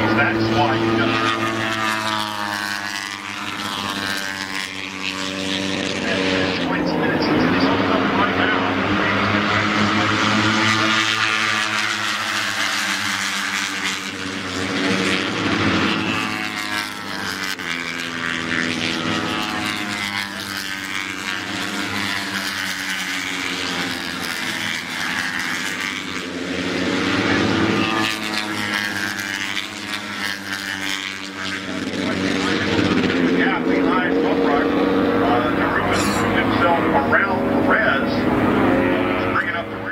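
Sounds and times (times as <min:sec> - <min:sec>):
racing motorcycles passing: 0:00.0 - 0:39.9.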